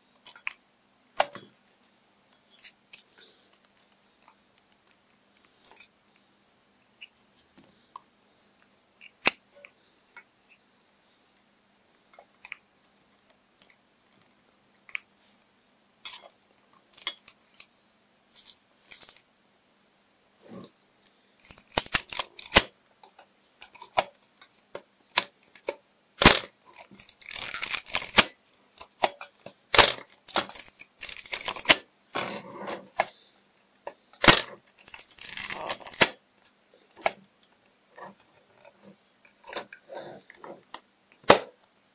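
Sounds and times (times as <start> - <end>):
film advance lever ratcheting: 26.2 - 28.3, 29.8 - 31.8, 34.2 - 36.2.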